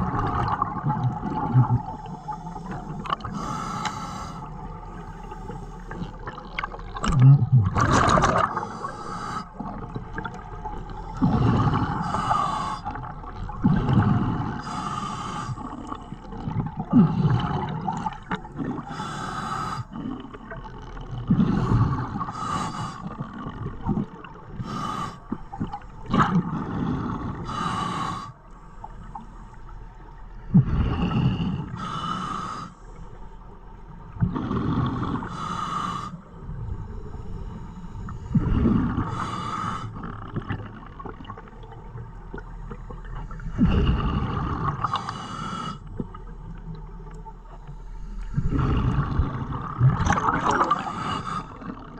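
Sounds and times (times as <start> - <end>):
scuba regulator breathing underwater: 1.3 - 6.4, 7.8 - 9.9, 11.0 - 16.2, 16.8 - 20.4, 21.3 - 23.6, 24.6 - 25.4, 26.2 - 29.5, 30.5 - 33.0, 34.2 - 40.8, 42.9 - 46.0, 47.8 - 51.9.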